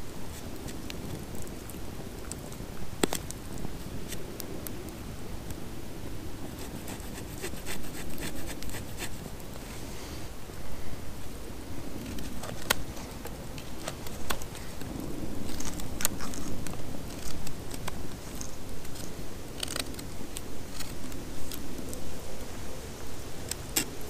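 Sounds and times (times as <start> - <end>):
wood fire crackling: 0.0 - 24.0
knife carving a wooden stick: 6.5 - 9.3, 15.5 - 20.1.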